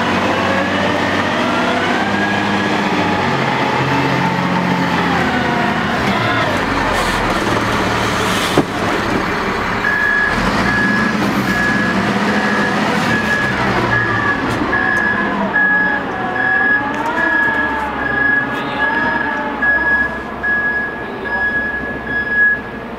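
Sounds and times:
diesel engine running: 0:00.0 - 0:22.9
reversing alarm beeps: 0:09.8 - 0:22.8.

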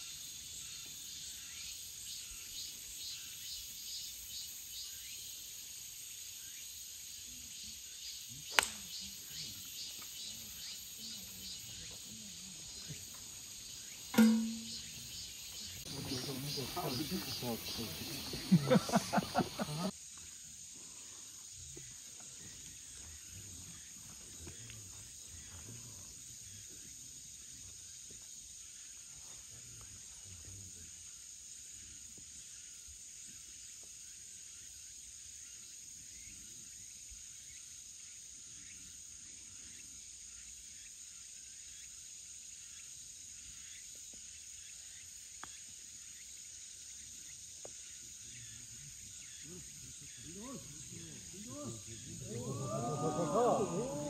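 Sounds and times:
insects chirring: 0:00.0 - 0:54.0
small ticks: 0:45.3 - 0:45.6.

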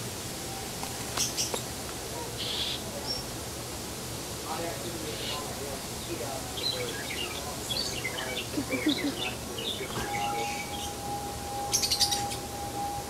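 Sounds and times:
birds chirping: 0:01.0 - 0:03.3, 0:04.5 - 0:13.0
long whistled note: 0:09.7 - 0:13.0.

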